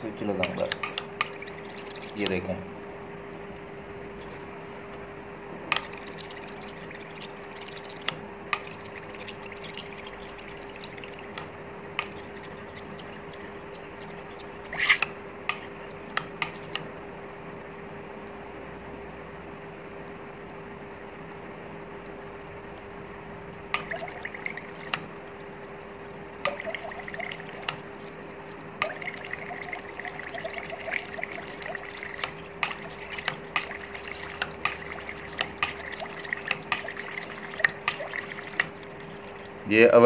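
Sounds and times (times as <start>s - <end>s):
faint steady hum: 0.0s - 40.0s
gas bubbling through water: 0.5s - 2.5s, 5.7s - 14.9s, 23.8s - 39.7s.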